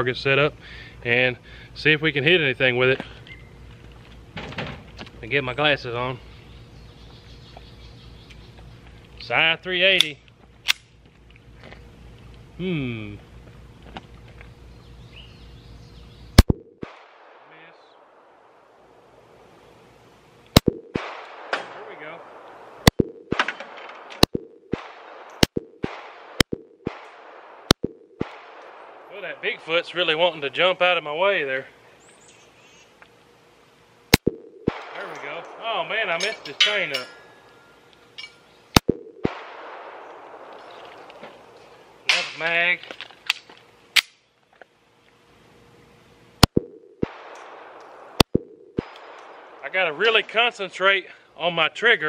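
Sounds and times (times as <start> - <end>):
pistol magazine clicks: 10.0 - 10.9
pistol shots: 16.4 - 18.6, 20.6 - 29.1, 34.1 - 37.0, 38.8 - 40.7, 46.4 - 49.7
steel targets ringing: 34.7 - 38.5.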